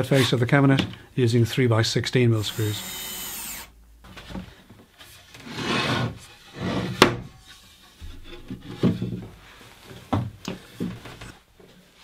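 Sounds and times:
wood rubbing and sliding: 0:04.2 - 0:11.4.

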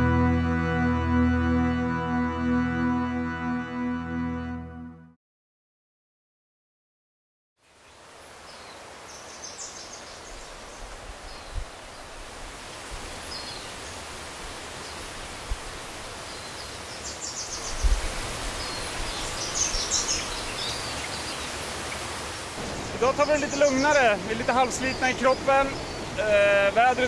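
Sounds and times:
small birds chirping: 0:16.2 - 0:27.0.

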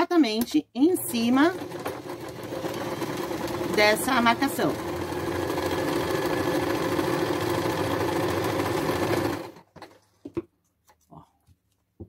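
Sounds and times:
sewing machine stitching: 0:00.8 - 0:10.1.

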